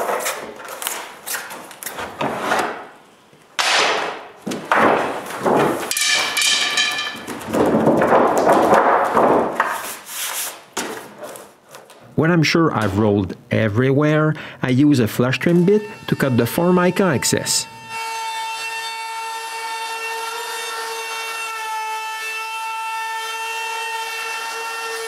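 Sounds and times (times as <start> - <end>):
plastic laminate sheet flexing and rubbing: 7.2 - 12.0.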